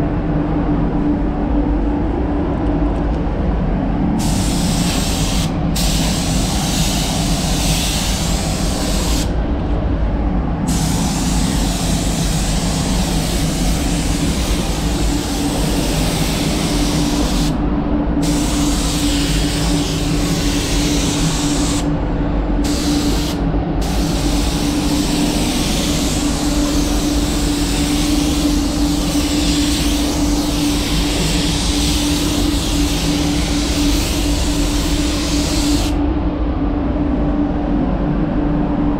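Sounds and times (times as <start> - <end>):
ventilation fan humming: 0.0 - 38.9
spray gun hissing: 4.2 - 9.3, 10.7 - 17.6, 18.2 - 21.9, 22.6 - 36.0.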